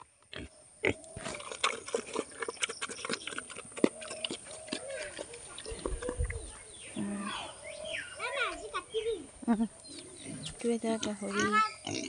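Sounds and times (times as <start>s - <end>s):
pig chomping wet feed: 1.2s - 6.4s.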